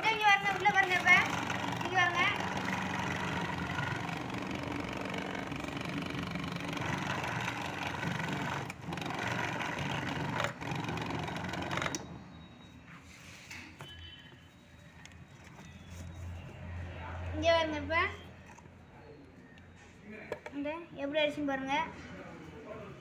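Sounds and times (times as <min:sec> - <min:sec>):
grinder motor whirring hum: 0:00.1 - 0:12.0.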